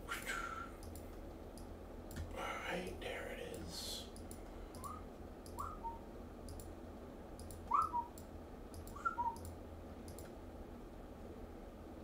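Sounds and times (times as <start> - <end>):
faint light clicks: 0.8 - 5.6, 8.2 - 10.4.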